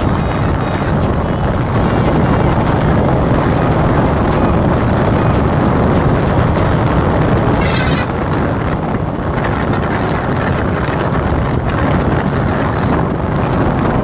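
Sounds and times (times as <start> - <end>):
motorcycle engine running: 0.0 - 14.0
wind rushing over microphone: 0.0 - 14.0
high wavering pitched sound: 7.4 - 8.3.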